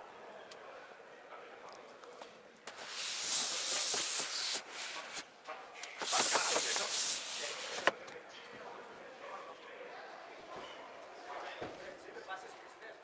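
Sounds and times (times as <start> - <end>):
sun blind sliding on rails: 2.7 - 5.3, 5.9 - 8.0.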